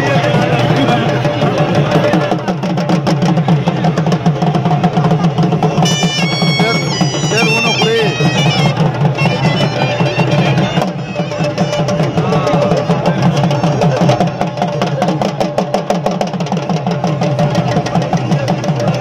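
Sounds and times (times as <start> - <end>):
drums beaten fast: 0.0 - 19.0
shrill wind instrument melody: 5.6 - 14.7.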